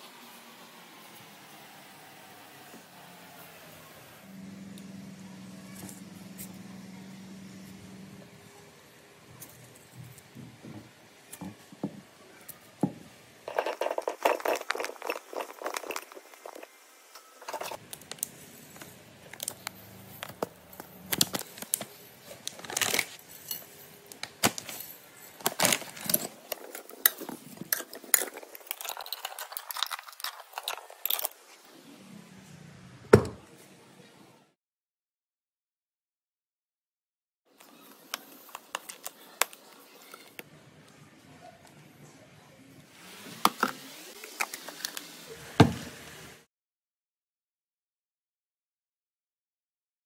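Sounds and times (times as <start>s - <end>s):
fruit rattling in glass bowl: 13.5s - 16.8s.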